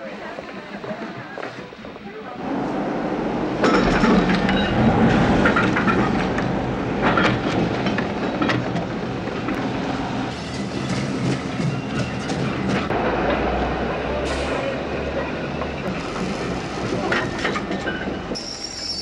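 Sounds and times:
train wagon wheels clattering: 3.6s - 9.7s.

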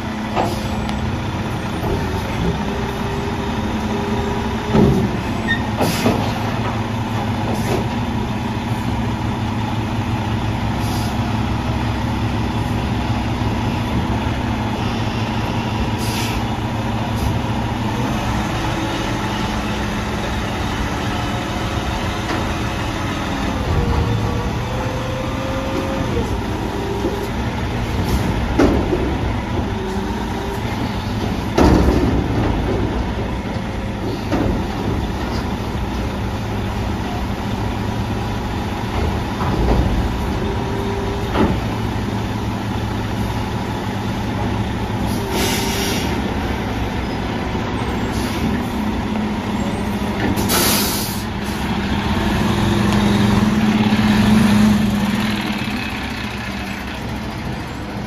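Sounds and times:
diesel truck engine running: 0.0s - 58.0s
loud metal clanks and bangs: 31.2s - 33.4s.

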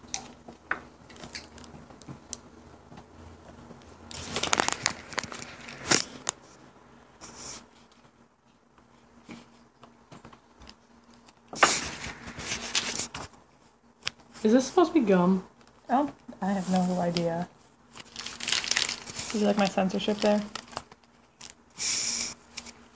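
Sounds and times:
snack packaging crinkling: 1.0s - 2.4s, 4.1s - 6.4s, 11.2s - 13.3s, 17.9s - 22.8s.

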